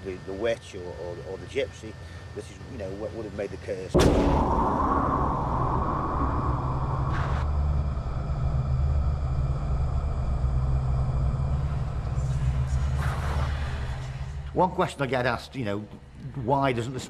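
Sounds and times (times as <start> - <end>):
hissing wash: 4.0 - 14.5
deep rumbling drone: 4.0 - 15.0.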